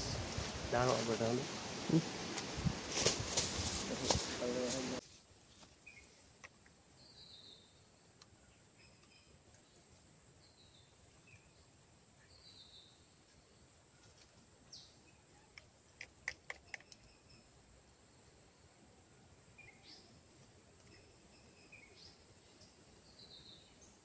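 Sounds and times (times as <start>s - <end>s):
steady high hiss: 0.0s - 24.0s.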